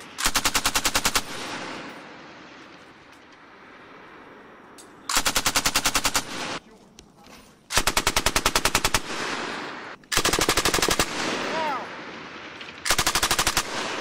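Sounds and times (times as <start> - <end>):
machine gun bursts: 5.1 - 6.6, 7.7 - 9.2, 10.1 - 11.2, 12.9 - 14.0.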